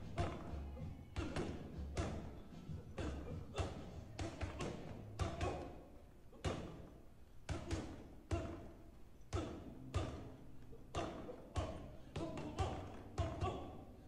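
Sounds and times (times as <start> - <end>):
gloved punches on reflex ball: 0.0 - 5.8, 6.4 - 8.7, 9.3 - 10.3.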